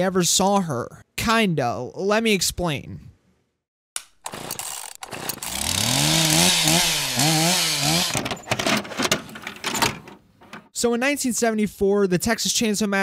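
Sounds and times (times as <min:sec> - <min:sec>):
chainsaw revving: 0:04.2 - 0:08.3.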